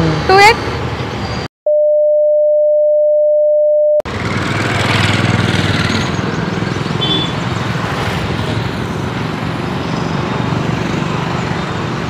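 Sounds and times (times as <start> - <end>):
street traffic noise: 0.0 - 1.5, 4.1 - 12.0
censor beep: 1.7 - 4.0.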